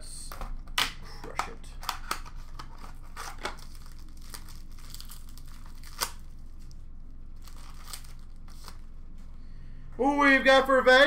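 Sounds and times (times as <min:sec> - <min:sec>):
wrapper crinkling and tearing: 0:02.2 - 0:09.0.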